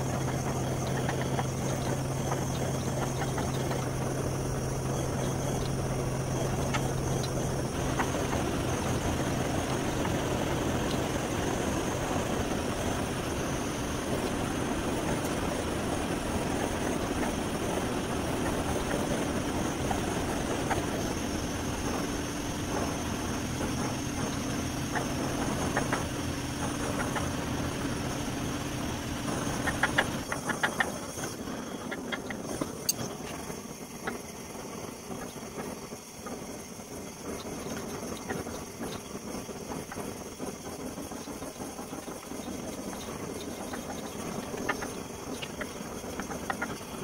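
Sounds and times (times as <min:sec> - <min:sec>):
motor humming: 0:00.0 - 0:47.0.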